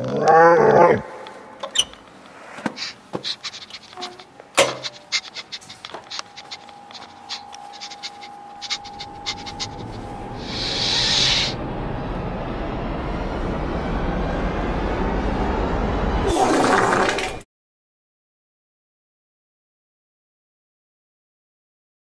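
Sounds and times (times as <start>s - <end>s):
footsteps: 1.1s - 10.8s.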